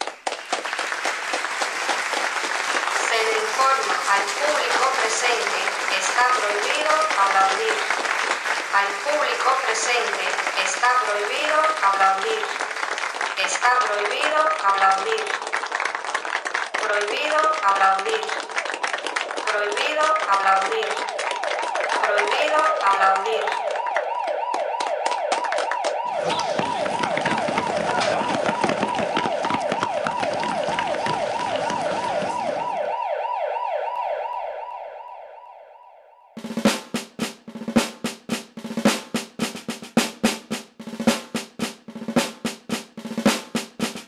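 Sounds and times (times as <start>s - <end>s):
applause: 0.0s - 32.8s
rhythmic drum beat: 0.6s - 16.0s, 16.7s - 32.6s, 36.4s - 44.0s
siren wailing: 19.8s - 36.4s.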